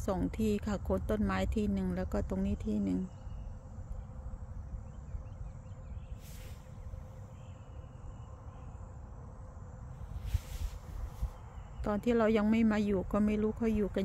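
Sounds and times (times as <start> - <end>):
insects chirping and buzzing: 0.0 - 14.0
steady low rumble: 0.0 - 14.0
high hiss: 6.1 - 7.7, 9.9 - 12.0.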